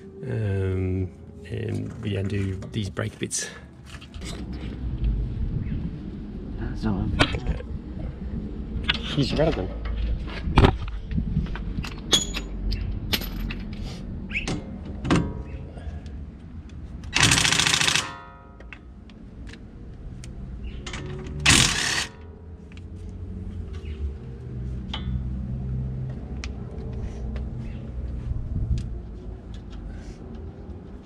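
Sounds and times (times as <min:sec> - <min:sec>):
impact wrench hammering: 0:17.1 - 0:18.7, 0:21.4 - 0:22.2.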